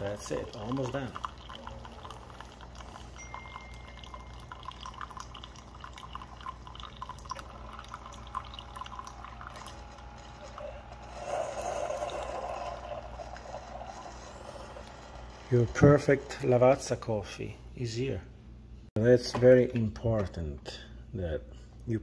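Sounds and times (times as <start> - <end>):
coffee pouring and dripping into mug: 0.0 - 15.5
coffee machine humming: 0.0 - 17.2.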